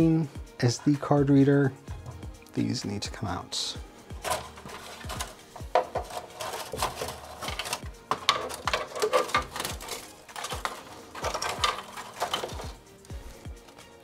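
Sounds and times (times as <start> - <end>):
cable rustling: 4.1 - 14.0
plastic connectors clicking: 4.2 - 13.8.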